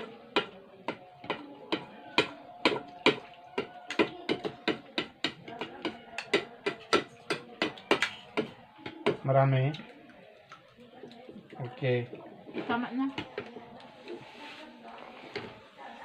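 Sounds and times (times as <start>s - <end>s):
spoons clinking against bowls: 3.0s - 8.6s.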